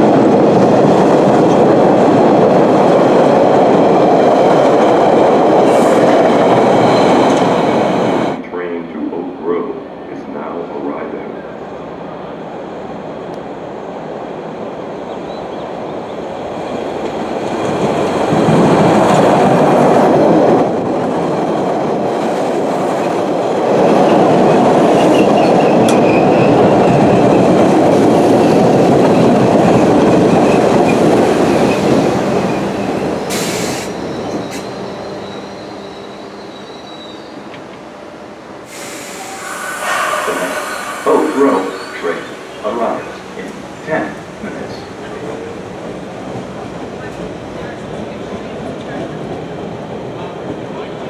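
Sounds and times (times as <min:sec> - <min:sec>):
subway train passing: 0:00.0 - 0:51.0
high wheel squeal: 0:32.5 - 0:37.4, 0:38.8 - 0:42.7.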